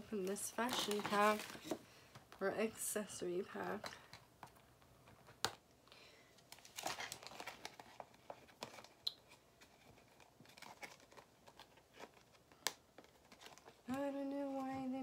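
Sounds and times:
plastic packaging crinkling: 0.1 - 1.8, 6.4 - 14.9.

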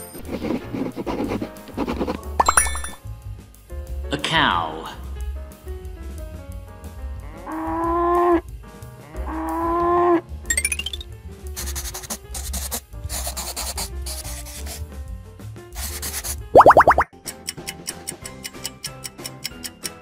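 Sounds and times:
marker drawing on a board: 0.0 - 2.4, 11.6 - 14.8, 15.8 - 16.4
background music: 0.0 - 20.0
cow mooing: 7.2 - 8.4.

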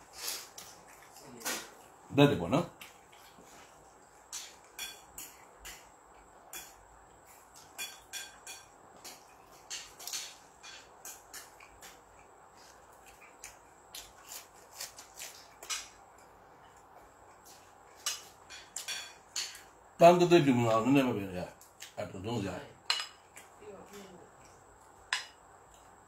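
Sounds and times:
chewing crunches: 11.1 - 16.0.

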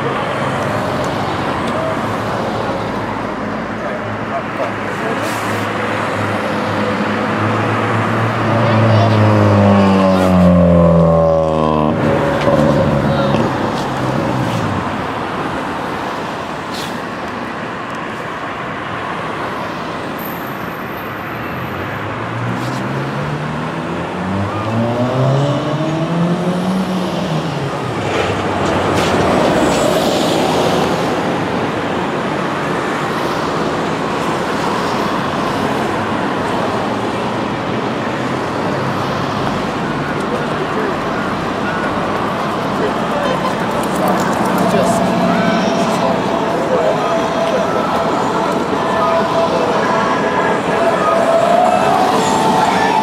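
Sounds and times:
traffic passing on road: 0.0 - 53.0
vehicle engine revving: 40.2 - 53.0.

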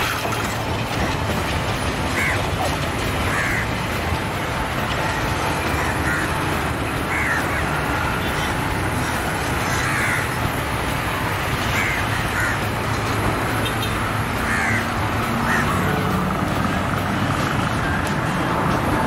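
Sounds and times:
passenger train rumbling: 0.0 - 19.0
crows cawing: 1.8 - 16.2.

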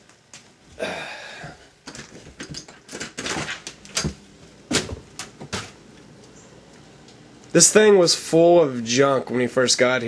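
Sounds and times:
sharp knocks and clatters: 1.9 - 5.8.

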